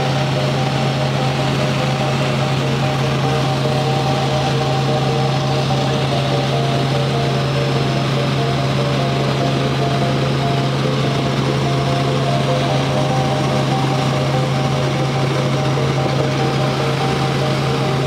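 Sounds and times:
helicopter engine and rotors drone: 0:00.0 - 0:18.0.

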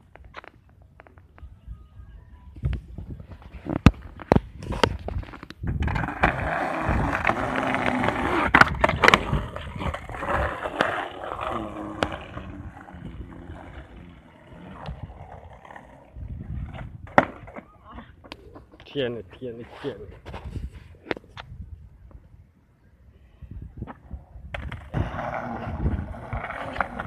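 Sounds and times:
skateboard wheels rolling on concrete: 0:00.0 - 0:01.6, 0:02.5 - 0:22.8, 0:23.7 - 0:27.0
skateboard clacks: 0:03.8 - 0:16.0.

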